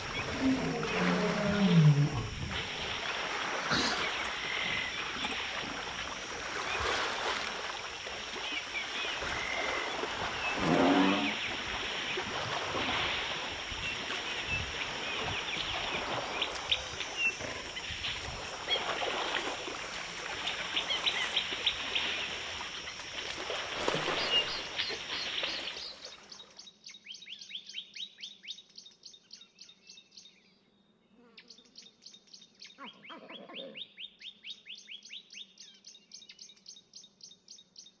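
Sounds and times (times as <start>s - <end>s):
mud and water splashing: 0.0s - 26.3s.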